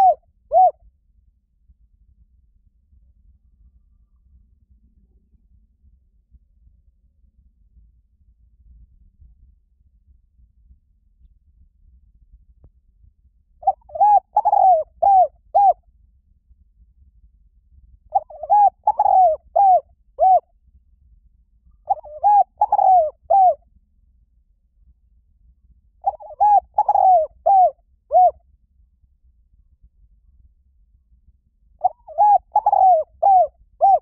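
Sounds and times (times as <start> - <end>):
dove cooing: 0.0 - 0.8, 13.6 - 15.8, 18.1 - 20.4, 21.8 - 23.6, 26.0 - 28.4, 31.8 - 34.0.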